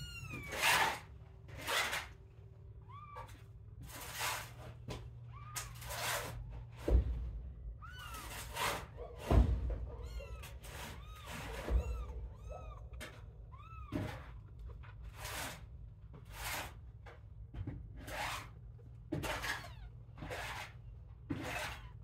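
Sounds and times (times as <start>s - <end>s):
kittens mewing: 0.0s - 2.1s, 2.7s - 4.1s, 5.2s - 6.4s, 7.8s - 15.0s
low thumps of kittens jostling: 9.2s - 14.6s.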